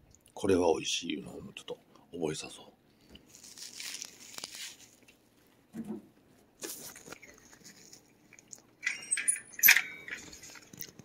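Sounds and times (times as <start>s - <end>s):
cat crunching a treat: 3.0s - 5.2s, 6.6s - 8.8s, 10.3s - 11.0s
clattering with metallic ring: 8.8s - 10.5s.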